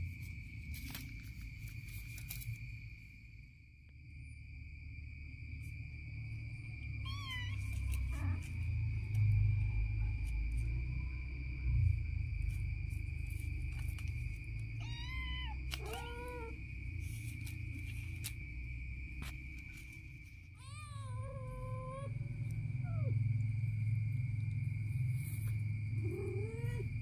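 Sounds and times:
cats meowing: 7.0 - 8.6, 14.8 - 16.6, 20.6 - 22.2, 26.0 - 26.9.

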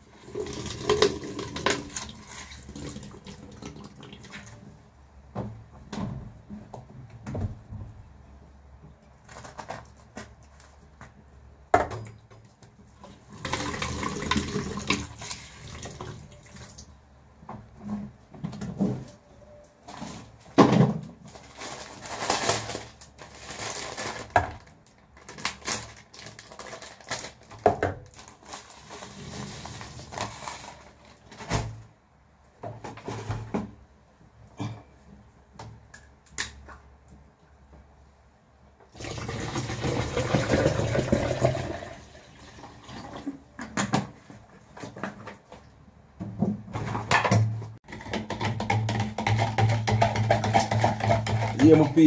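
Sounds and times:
kitchen items clattering: 46.3 - 52.0.

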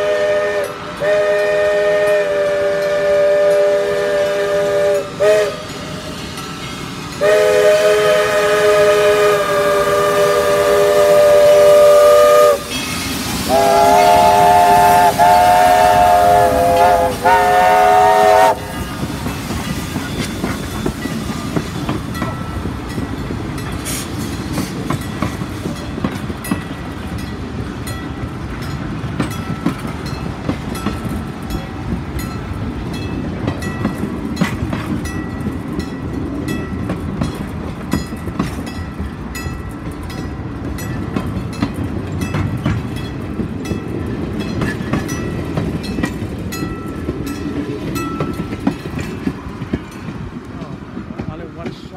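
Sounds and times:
steam locomotive whistle: 0.0 - 6.1, 7.2 - 19.2
train coaches rumbling past: 0.0 - 51.9.

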